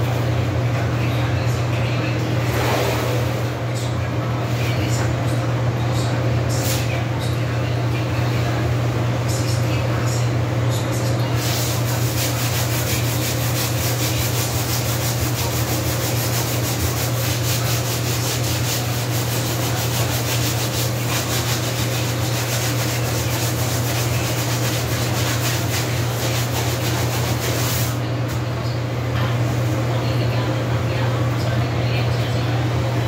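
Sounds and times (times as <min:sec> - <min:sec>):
rag scrubbing floor: 0:11.3 - 0:28.0.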